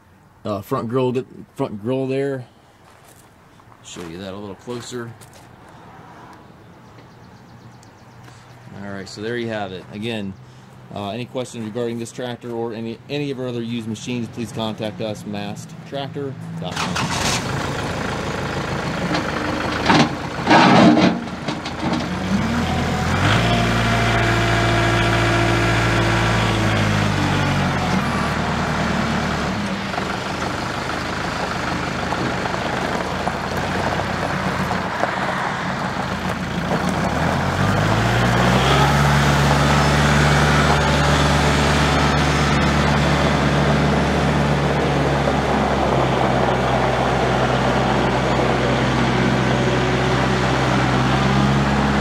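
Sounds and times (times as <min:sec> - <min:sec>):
tractor diesel engine running: 0:13.5 - 0:52.0.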